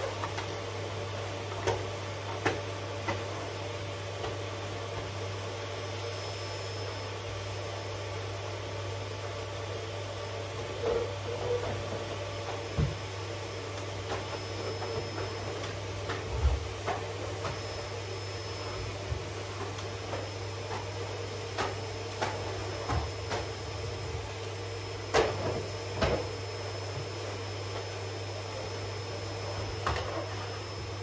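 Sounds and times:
vacuum cleaner humming: 0.0 - 31.0.

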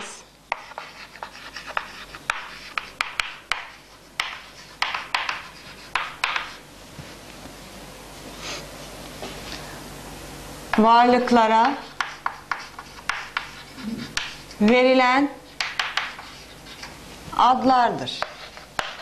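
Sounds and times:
chalk writing on a chalkboard: 0.5 - 6.6, 11.6 - 14.5, 15.5 - 17.0, 18.2 - 19.0.

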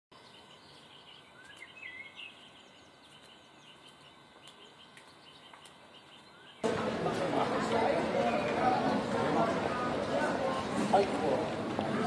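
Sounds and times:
faint birdsong chirps and whistles: 0.1 - 6.6
rising whistled bird notes: 0.3 - 2.8.

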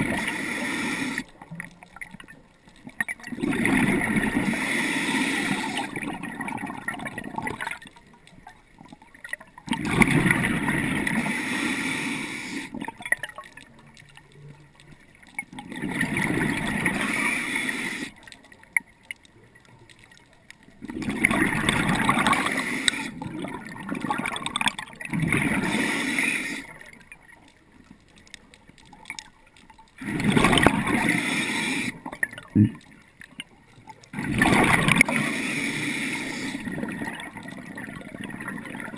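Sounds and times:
diver's exhaled breath bubbling: 3.2 - 7.8, 15.7 - 18.2, 20.8 - 27.0, 30.0 - 33.0, 34.1 - 38.9.

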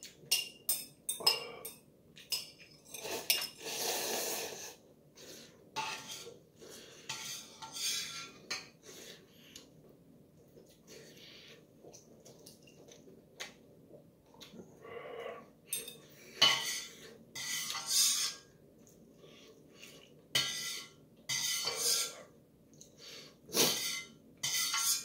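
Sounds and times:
metal chopsticks scraping pot: 7.1 - 8.7, 23.7 - 25.0.

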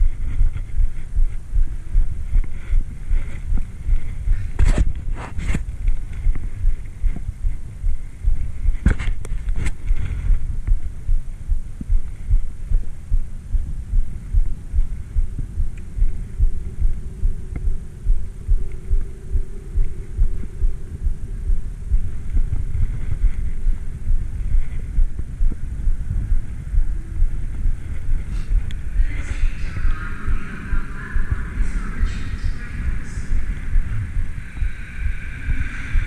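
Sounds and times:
faint hum: 0.0 - 36.0
low thumping: 0.0 - 36.0.

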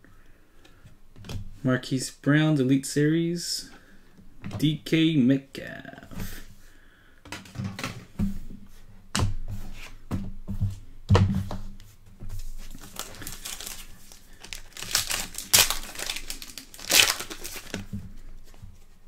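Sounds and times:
foil wrapper crinkling and tearing: 12.7 - 17.9.

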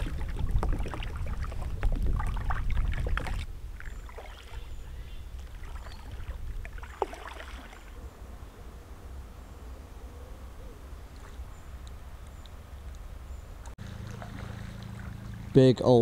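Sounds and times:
paddle strokes splashing: 0.0 - 8.0, 13.8 - 15.5
water rushing along kayak hull: 0.0 - 8.0.

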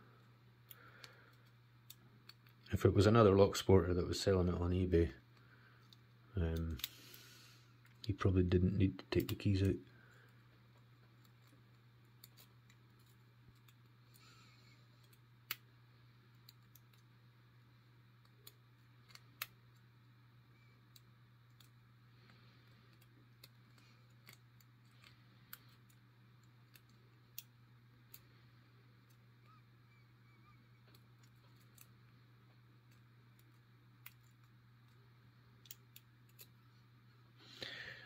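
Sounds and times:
low steady hum: 0.0 - 38.0.

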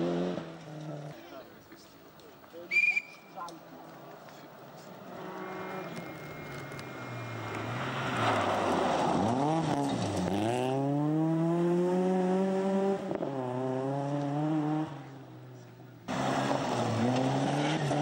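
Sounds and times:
rally car engine revving: 0.0 - 1.2, 5.1 - 15.2, 16.1 - 18.0
gravel under tyres: 0.0 - 12.0, 14.0 - 18.0.

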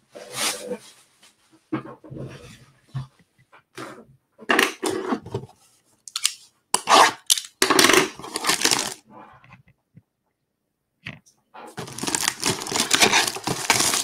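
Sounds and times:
cardboard box scraping and rustling: 11.8 - 14.0.

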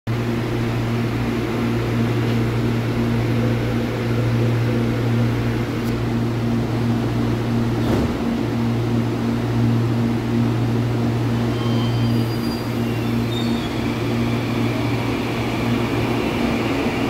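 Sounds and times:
train equipment low hum: 0.1 - 17.0
faint pulsing tone: 0.8 - 7.6.

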